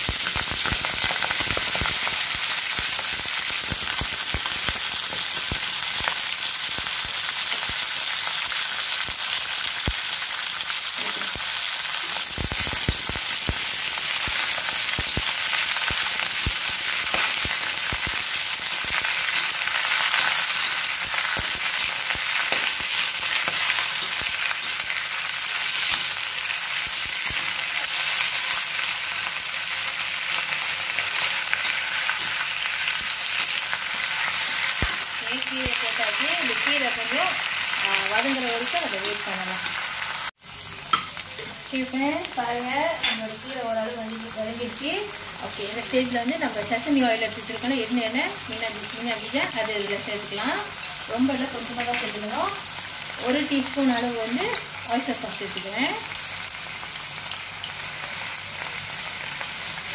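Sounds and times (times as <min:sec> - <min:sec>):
greens sizzling in hot oil: 0:00.0 - 0:59.9.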